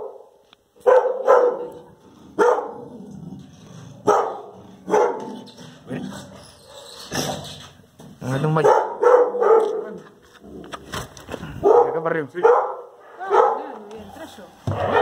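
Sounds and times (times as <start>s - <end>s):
dog barking: 0.0s - 2.8s, 4.0s - 5.5s, 8.6s - 10.0s, 11.6s - 13.8s, 14.7s - 15.0s.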